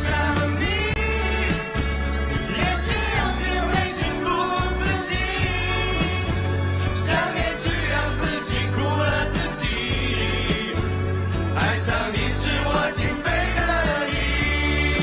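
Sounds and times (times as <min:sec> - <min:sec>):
live pop band playing: 0:00.0 - 0:15.0
singers singing together: 0:00.0 - 0:15.0.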